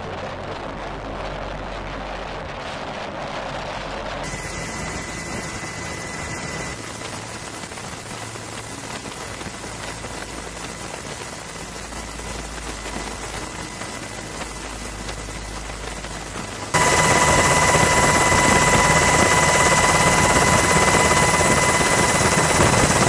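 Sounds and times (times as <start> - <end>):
faint high tone: 16.8 - 23.0.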